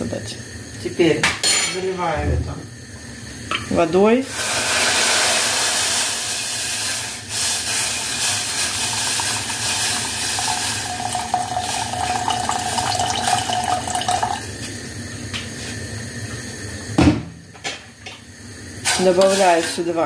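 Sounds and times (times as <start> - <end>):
water pouring into metal pot: 4.3 - 14.6.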